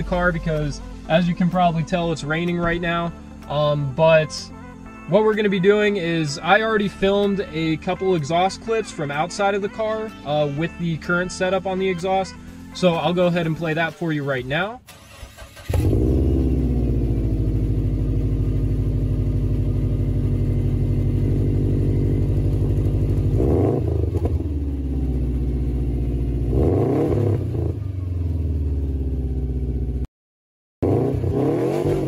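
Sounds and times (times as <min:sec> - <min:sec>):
car engine starting and idling: 0:00.0 - 0:04.3, 0:13.6 - 0:30.1
engine revving blips: 0:15.4 - 0:19.0, 0:20.3 - 0:25.3, 0:26.0 - 0:30.0, 0:30.8 - 0:32.0.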